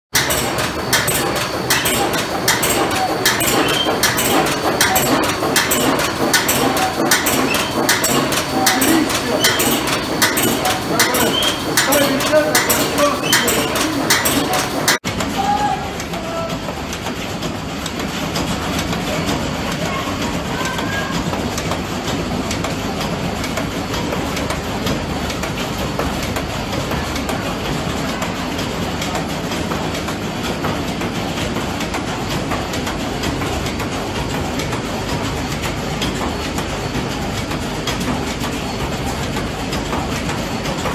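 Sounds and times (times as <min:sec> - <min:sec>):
wood shaving machine clattering: 0:00.2 - 0:15.4
wood wool machine clattering: 0:00.2 - 0:40.9.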